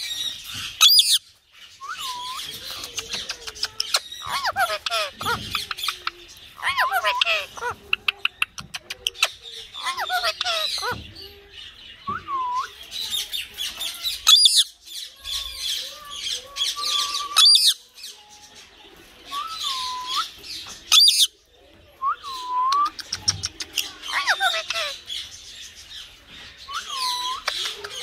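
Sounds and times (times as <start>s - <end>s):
parakeet chattering: 2.0s - 11.1s, 22.9s - 25.5s
parakeet squawks: 3.9s - 6.0s, 6.6s - 7.8s, 9.2s - 11.0s, 14.2s - 14.7s, 24.1s - 25.0s.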